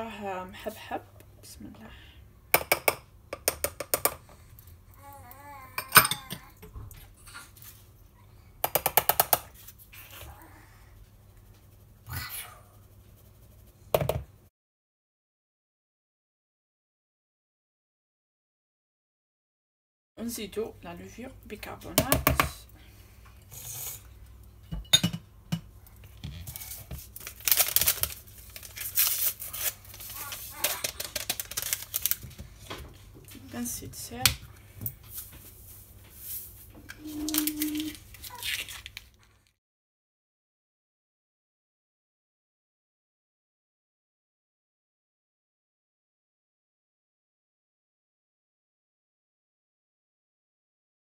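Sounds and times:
paper sachet tearing and crinkling: 26.5 - 32.2, 37.0 - 39.5.

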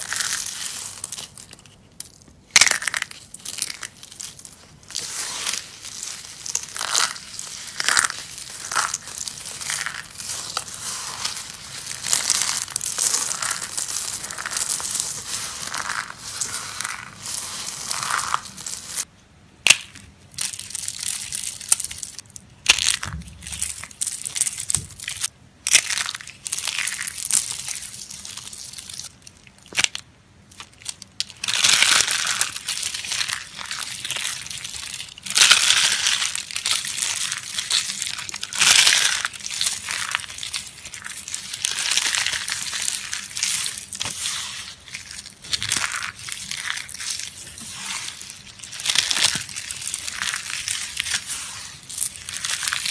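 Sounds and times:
soap crunching and crackling: 0.0 - 52.9.

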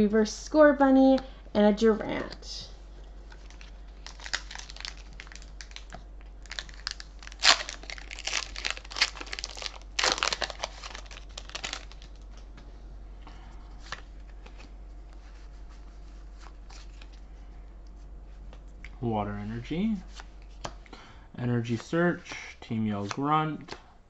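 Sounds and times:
foil wrapper crinkling and tearing: 3.4 - 12.4.

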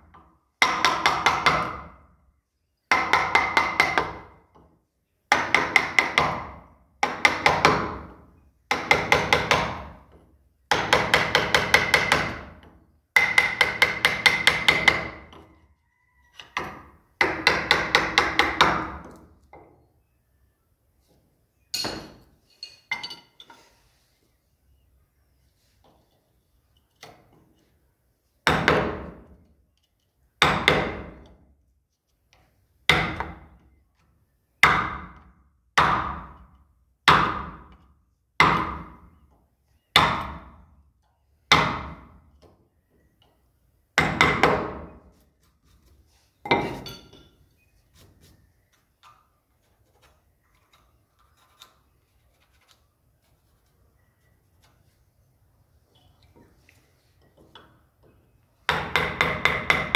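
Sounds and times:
hammer striking chisel into wood: 0.6 - 1.9, 2.9 - 4.4, 5.3 - 10.0, 10.7 - 15.4, 16.6 - 19.2, 28.4 - 29.2, 30.4 - 31.4, 32.9 - 33.5, 34.6 - 35.2, 35.8 - 36.5, 37.1 - 37.8, 38.4 - 39.1, 41.5 - 42.2, 44.0 - 44.9, 58.7 - 59.9.

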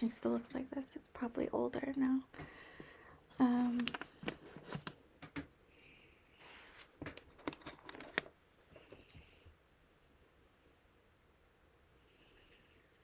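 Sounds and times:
packaging clicks and taps: 3.7 - 5.5, 7.0 - 8.3.

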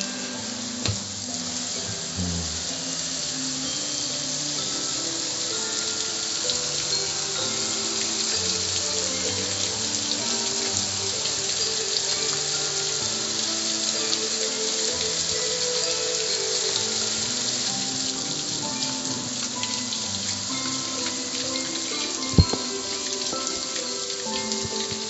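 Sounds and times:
background music: 0.0 - 25.0
water spray hitting metal: 21.9 - 25.0.

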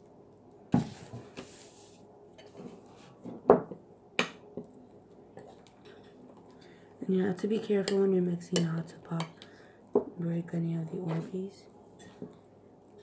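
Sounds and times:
spoon stirring slime: 5.4 - 9.5.

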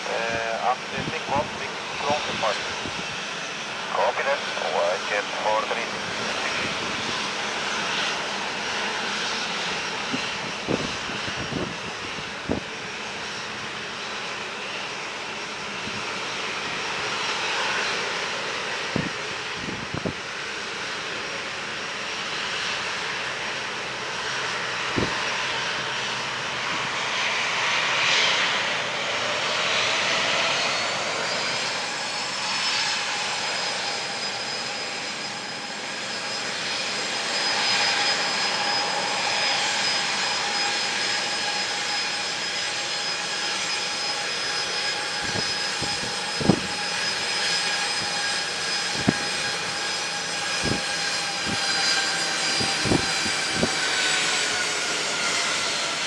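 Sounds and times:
jet engine whine: 0.0 - 56.0.

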